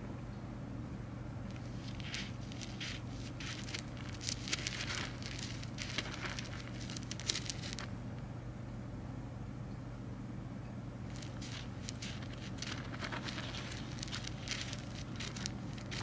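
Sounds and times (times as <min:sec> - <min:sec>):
steady low hum: 0:00.0 - 0:16.0
soil crackling and rustling: 0:01.5 - 0:07.9, 0:11.1 - 0:16.0.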